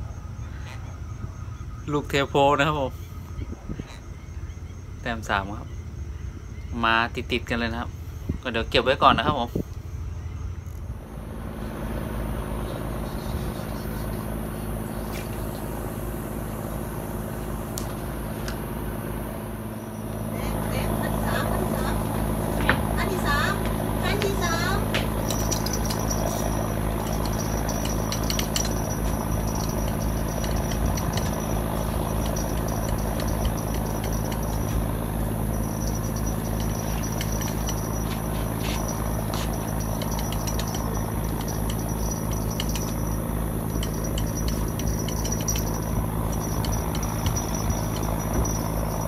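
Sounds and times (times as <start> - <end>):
motor droning: 0.0 - 49.0
thin high tone: 18.7 - 49.0.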